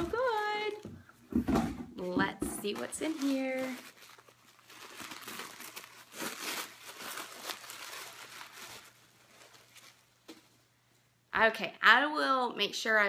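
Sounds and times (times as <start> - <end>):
packaging crinkling and rustling: 2.5 - 10.6.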